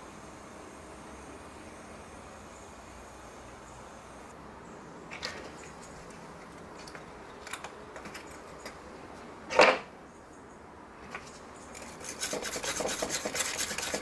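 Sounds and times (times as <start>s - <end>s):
quick scratching and rubbing: 11.8s - 14.0s.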